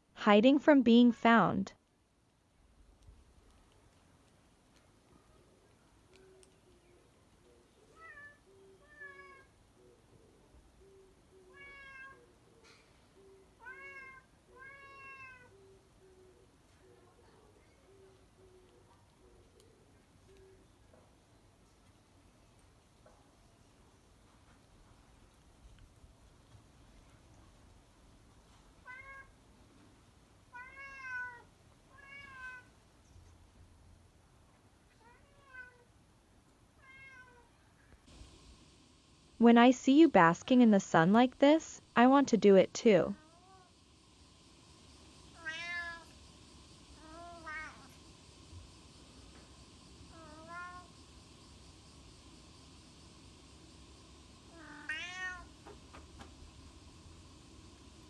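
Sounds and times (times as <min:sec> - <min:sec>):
cat meowing faintly: 0:07.8 - 0:09.6, 0:11.4 - 0:12.3, 0:13.6 - 0:15.6, 0:28.8 - 0:29.3, 0:30.5 - 0:32.7, 0:35.0 - 0:35.9, 0:36.8 - 0:37.9, 0:45.4 - 0:46.1, 0:47.0 - 0:47.9, 0:50.1 - 0:50.9, 0:54.5 - 0:55.5.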